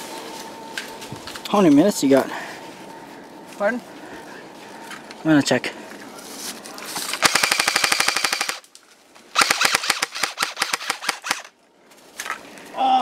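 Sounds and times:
airsoft rifle full auto bursts: 7.2s - 8.6s, 9.3s - 11.5s.

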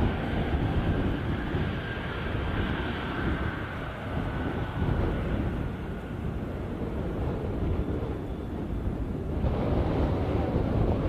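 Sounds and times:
jet engines rumbling with whine: 0.0s - 11.0s.

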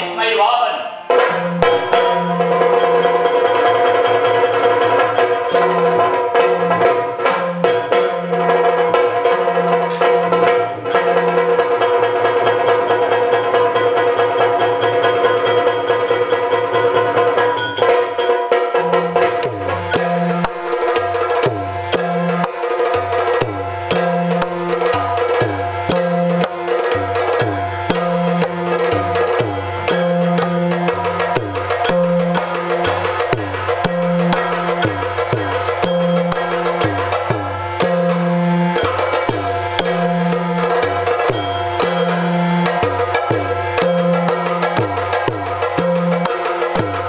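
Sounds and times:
low two-note drum pattern: 1.2s - 3.0s, 19.4s - 47.0s
fast dense drumming: 18.7s - 47.0s.

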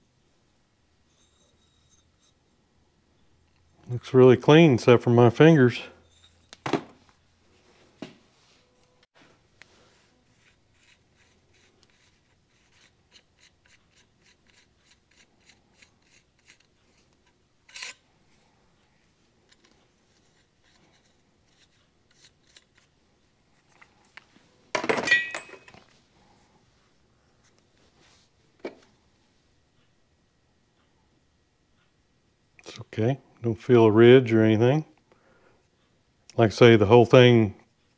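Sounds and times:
metal clink: 24.8s - 25.8s
metal parts clattering: 24.8s - 25.8s.

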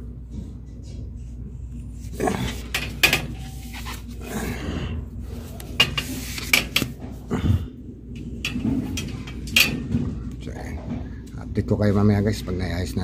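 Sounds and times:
steady low hum: 0.0s - 13.0s
hands handling cables and insulation: 2.5s - 4.2s, 5.6s - 7.0s.

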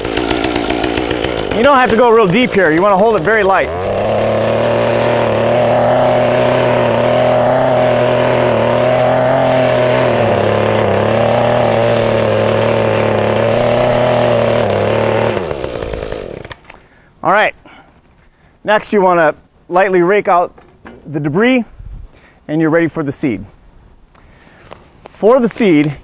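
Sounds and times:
tiller engine running: 0.0s - 16.8s
tines churning through soil: 0.0s - 16.8s.

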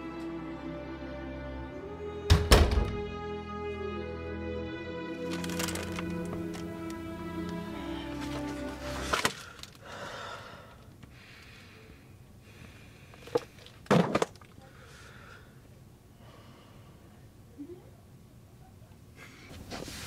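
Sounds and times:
music: 0.0s - 9.5s
person breathing heavily: 8.8s - 13.8s, 14.6s - 17.2s.

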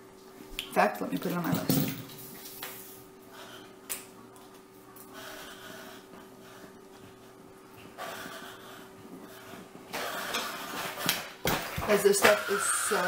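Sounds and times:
faint steady hum: 0.0s - 13.0s
quiet breaths: 3.2s - 3.8s, 5.0s - 10.8s.

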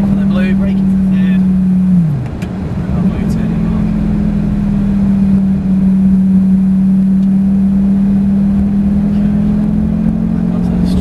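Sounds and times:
car engine drone inside cabin: 0.0s - 11.0s.

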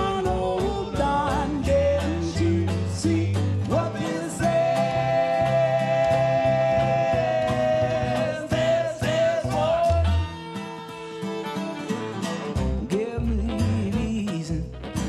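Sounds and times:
man singing: 0.0s - 10.4s, 12.8s - 15.0s
strummed acoustic guitar: 0.0s - 15.0s
upright bass: 0.0s - 15.0s
violin: 4.8s - 12.9s.

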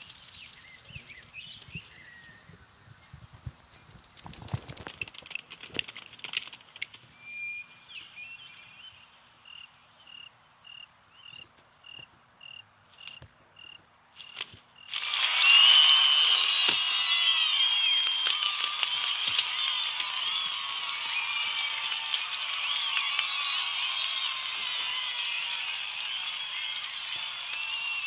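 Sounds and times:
rustles and clicks: 3.2s - 7.0s
cartoon crowd cheering: 14.9s - 28.0s.

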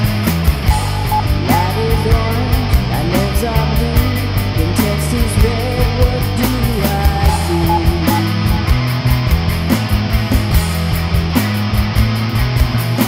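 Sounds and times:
rock band playing: 0.0s - 13.0s
woman singing: 1.0s - 8.7s.

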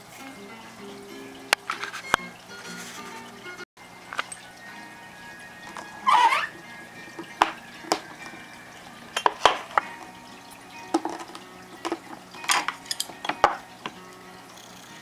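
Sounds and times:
dishes knocking and clinking: 7.2s - 8.4s, 9.1s - 10.1s, 10.8s - 14.0s.

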